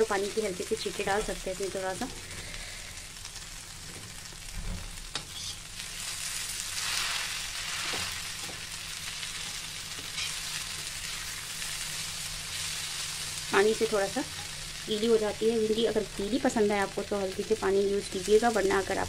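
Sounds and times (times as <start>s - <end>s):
okra sizzling in oil: 0.0s - 19.0s
spatula scraping pan: 5.2s - 5.6s, 9.4s - 11.3s.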